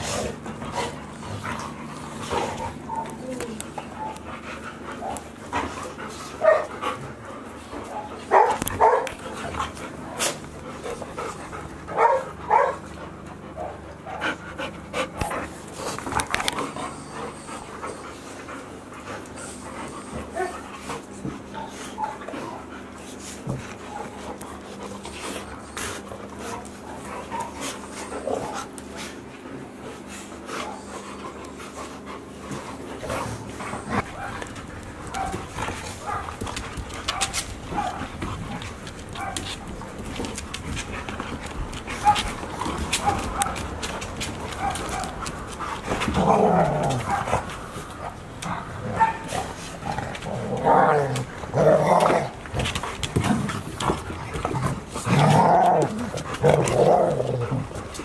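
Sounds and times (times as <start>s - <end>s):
dogs panting: 0.0s - 58.0s
dogs play vocalisations: 0.0s - 58.0s
dogs barking: 6.4s - 6.8s, 7.8s - 9.2s, 11.9s - 12.9s, 33.8s - 36.4s, 37.0s - 38.2s, 39.1s - 39.6s, 44.5s - 45.2s, 48.4s - 49.4s.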